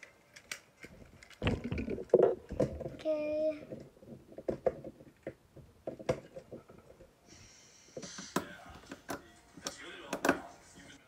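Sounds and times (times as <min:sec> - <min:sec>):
plastic toy train clicks: 0:00.0 - 0:01.4.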